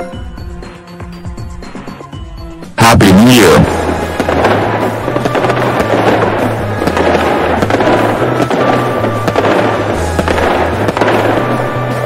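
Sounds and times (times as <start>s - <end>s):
background music with bass: 0.0s - 12.0s
fireworks crackling and popping: 3.7s - 12.0s.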